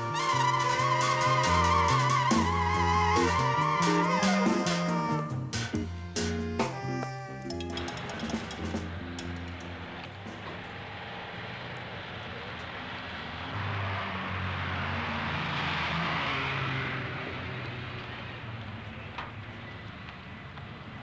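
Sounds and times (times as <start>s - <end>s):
vehicle passing: 7.1s - 21.0s.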